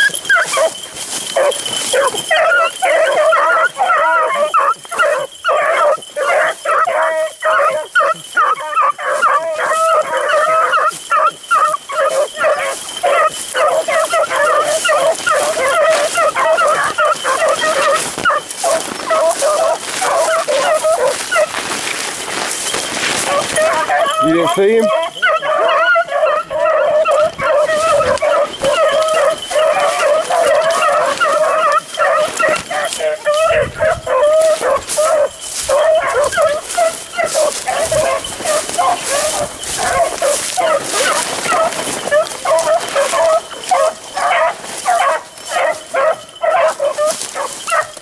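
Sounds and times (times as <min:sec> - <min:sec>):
pack of hounds baying: 0:00.0 - 0:48.0.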